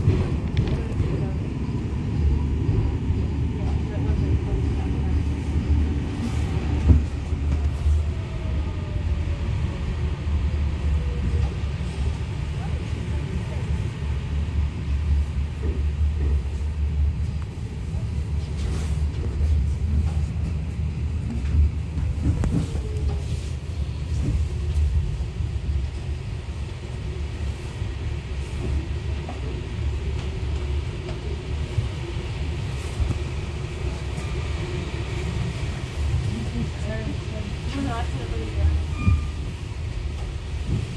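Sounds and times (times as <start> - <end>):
subway car low rumble: 0.0 - 40.9.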